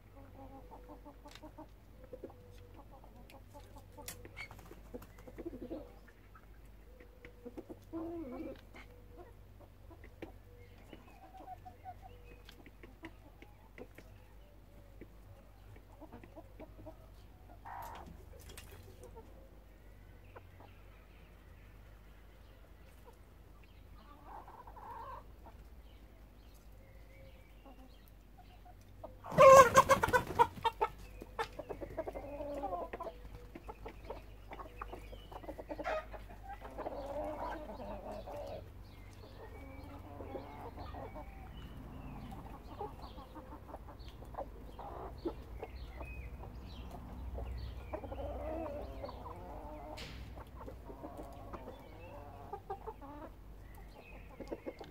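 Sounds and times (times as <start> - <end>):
chickens clucking: 0.0 - 54.9
loud chicken call: 29.2 - 30.6.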